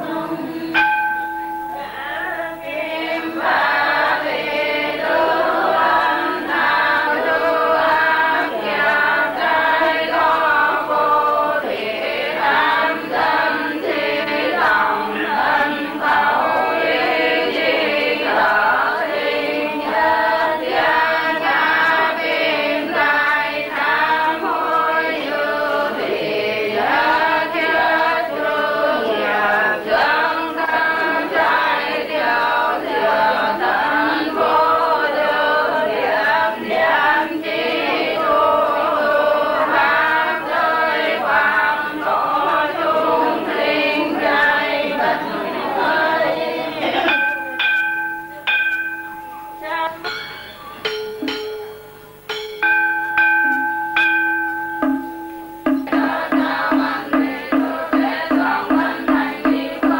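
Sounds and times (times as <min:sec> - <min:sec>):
group chanting a prayer: 0:00.0 - 0:51.4, 0:52.1 - 0:59.9.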